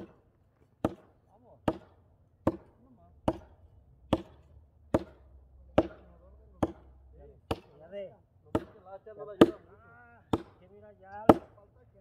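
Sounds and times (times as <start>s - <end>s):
axe chopping firewood: 0.0s - 7.8s, 8.5s - 8.8s, 9.4s - 9.6s, 10.3s - 10.6s, 11.2s - 11.6s.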